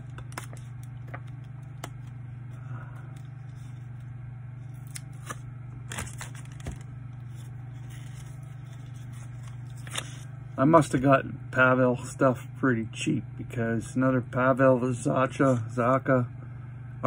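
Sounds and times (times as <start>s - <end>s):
trading cards scraping and clicking: 0.0s - 2.2s, 3.1s - 10.3s
steady low hum: 0.0s - 17.0s.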